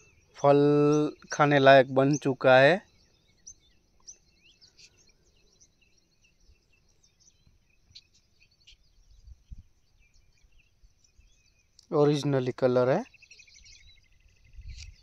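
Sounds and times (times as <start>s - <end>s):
faint bird chirps: 0.0s - 15.0s.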